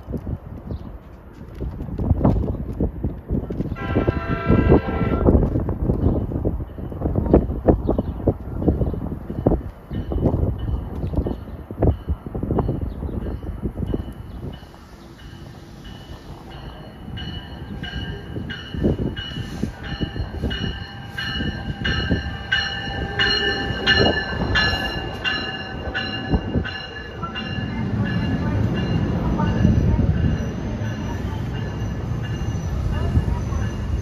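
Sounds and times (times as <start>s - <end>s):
train cars rumbling past: 0.0s - 34.0s
train bell ringing: 8.7s - 34.0s.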